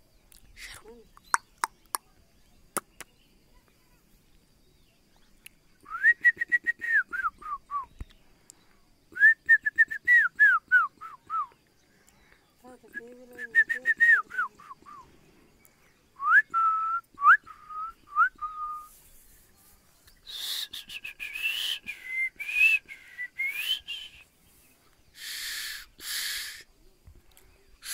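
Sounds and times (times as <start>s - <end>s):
person whistling: 5.9s - 7.9s, 9.2s - 11.5s, 13.4s - 15.0s, 16.2s - 18.9s, 20.2s - 24.2s
breathy hissing bursts: 25.0s - 26.7s.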